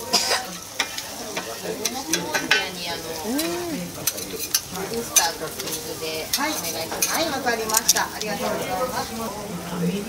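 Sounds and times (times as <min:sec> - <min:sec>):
steady sizzling hiss: 0:00.0 - 0:10.0
person humming mmm: 0:03.2 - 0:03.9.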